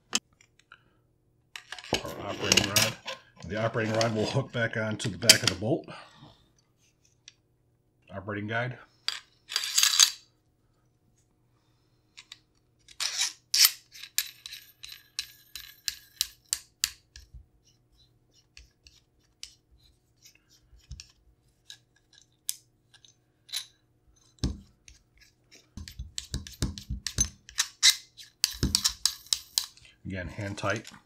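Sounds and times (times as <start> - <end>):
metal gun parts clicking and scraping: 1.6 - 4.4, 9.1 - 10.2, 12.2 - 17.3, 20.2 - 31.0.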